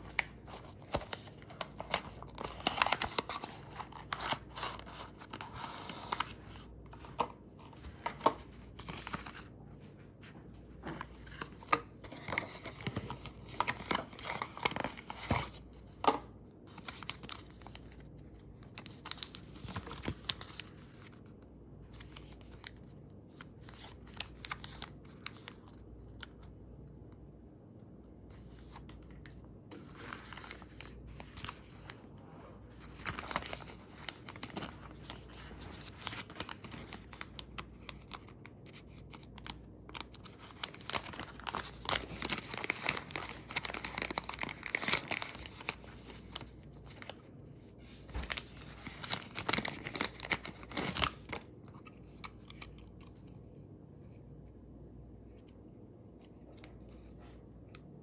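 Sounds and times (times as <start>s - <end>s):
plastic packaging crinkling: 0.0s - 9.5s, 32.8s - 47.3s, 48.1s - 53.3s.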